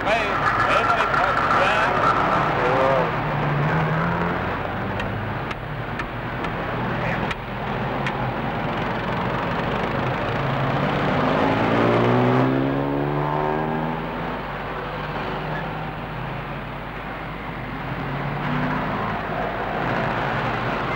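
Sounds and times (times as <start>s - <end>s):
engine revving: 0.0s - 5.5s, 10.4s - 14.4s, 17.9s - 20.9s
motor traffic: 0.0s - 20.9s.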